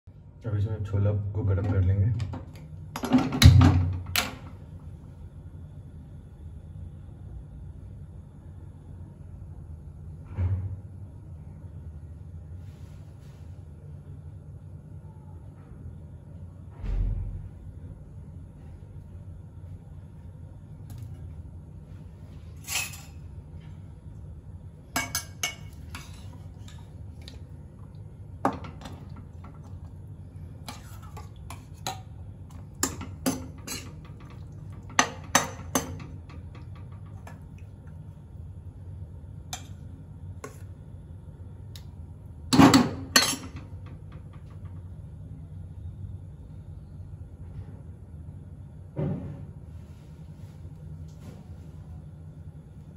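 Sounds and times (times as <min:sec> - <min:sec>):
low steady hum: 0:00.0 - 0:52.9
steel ladle scraping a pot: 0:22.6 - 0:23.2, 0:25.0 - 0:26.8, 0:30.7 - 0:32.0, 0:32.8 - 0:34.0.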